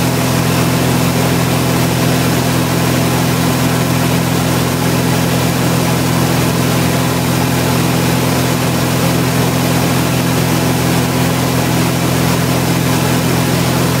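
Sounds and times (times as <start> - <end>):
aircraft engine and propeller droning: 0.0 - 14.0.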